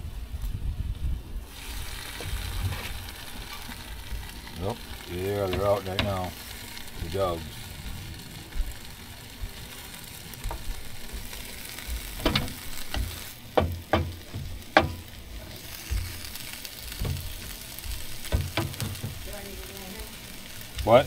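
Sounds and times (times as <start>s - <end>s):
ham sizzling on griddle: 1.4s - 21.0s
spatula striking metal plate: 12.2s - 15.0s.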